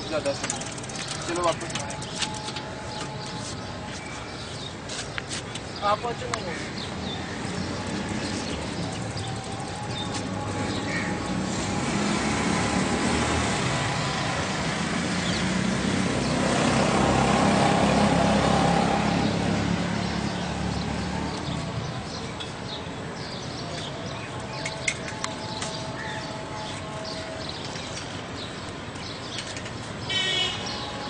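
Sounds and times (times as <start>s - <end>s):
vehicle passing by: 6.9s - 22.3s.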